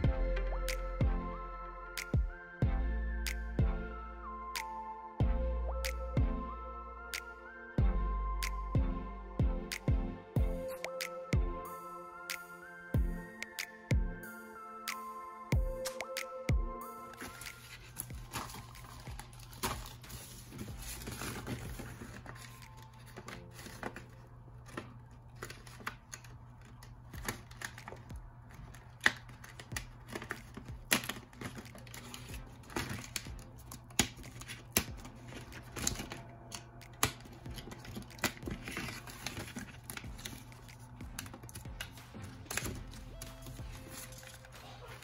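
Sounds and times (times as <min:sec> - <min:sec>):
paper crinkling and clicking: 0:17.0 - 0:45.0.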